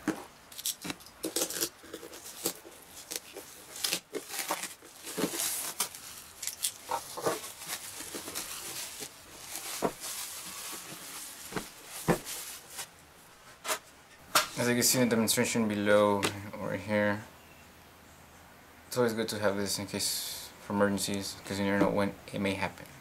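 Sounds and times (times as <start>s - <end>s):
plastic wrap crinkling: 0.0s - 13.0s.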